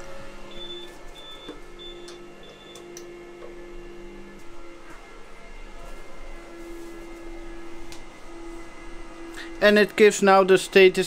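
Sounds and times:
server fans humming: 0.0 - 11.0
ups beeping: 0.5 - 2.9.

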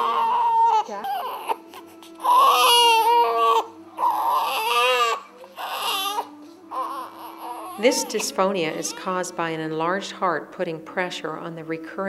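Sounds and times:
infant crying hoarsely: 0.0 - 9.6.

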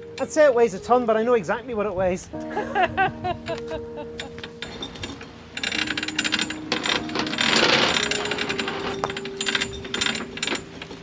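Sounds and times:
anchor chain rattling: 4.2 - 11.0.

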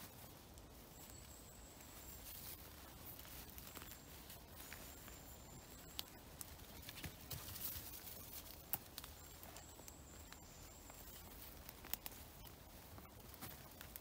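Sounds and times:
footsteps in wet grass and leaves: 0.0 - 14.0.

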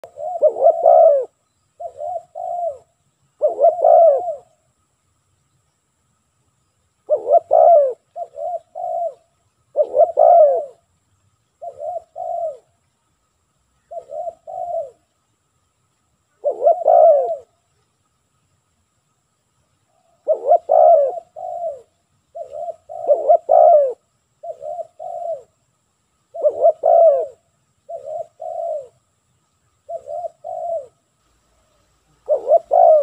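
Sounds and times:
dove cooing: 0.0 - 4.6, 7.0 - 10.9, 11.6 - 12.8, 13.8 - 15.1, 16.3 - 17.7, 20.0 - 25.6, 26.3 - 29.1, 29.8 - 33.0.

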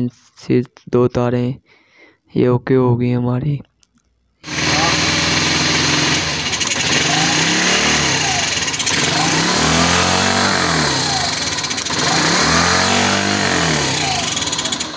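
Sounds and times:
motorcycle engine revving: 4.4 - 14.9.

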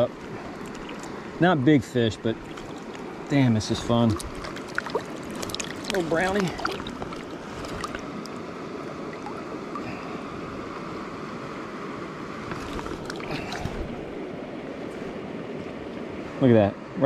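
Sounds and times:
creek running over rocks: 0.0 - 10.8, 12.4 - 15.0
light splashing of hand in water: 2.4 - 3.1, 3.9 - 8.1, 12.5 - 14.1.

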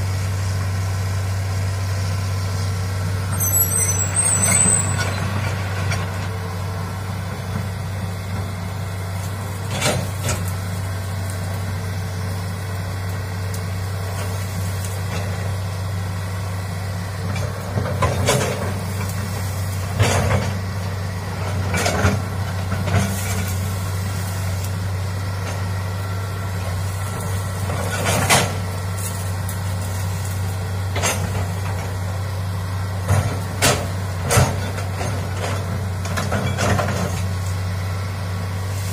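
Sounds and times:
excavator diesel engine running: 0.0 - 38.9
trees and brush cracking: 8.9 - 32.1.

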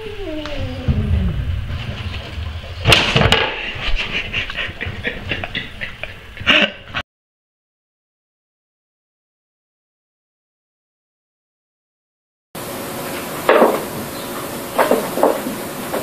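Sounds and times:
cat yowling: 0.0 - 1.2
loud burst of noise: 0.8 - 5.5.

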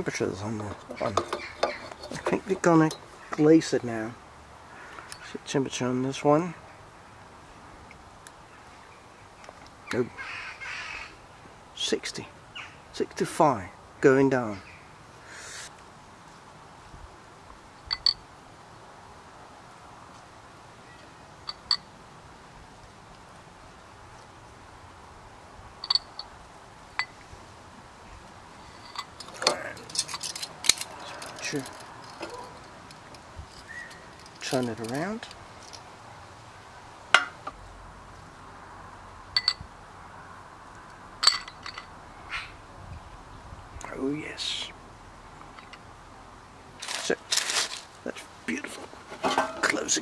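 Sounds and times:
metal grilling tools clicking: 0.6 - 3.1, 28.8 - 35.8
metal utensils clinking on ceramic bowl: 0.7 - 3.0.

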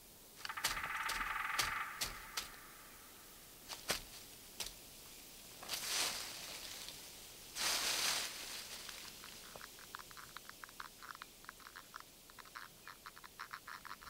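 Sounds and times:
dry leaves rustling: 0.4 - 3.0, 3.6 - 10.0.

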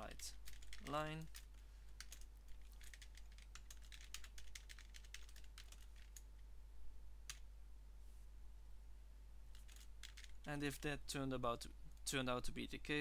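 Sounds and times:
keyboard typing: 0.0 - 6.4, 9.5 - 10.9
steady low hum: 0.0 - 13.0.

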